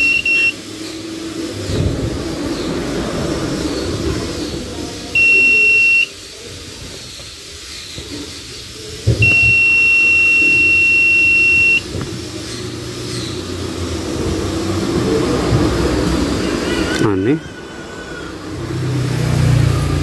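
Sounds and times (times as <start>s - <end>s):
multimeter beeping: 0.0s - 0.6s, 5.2s - 6.1s, 9.2s - 11.8s.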